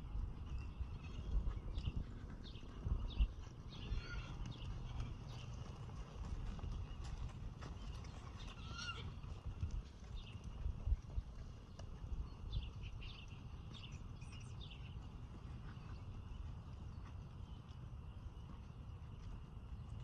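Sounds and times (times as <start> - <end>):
birds chirping: 0.0 - 20.0
horse hooves on dirt: 0.0 - 20.0
low outdoor rumble: 0.0 - 20.0.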